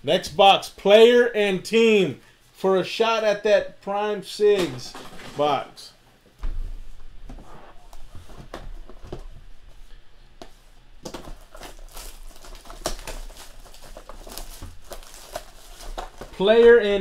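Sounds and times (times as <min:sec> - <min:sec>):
plastic wrap crinkling: 0:11.0 - 0:17.0.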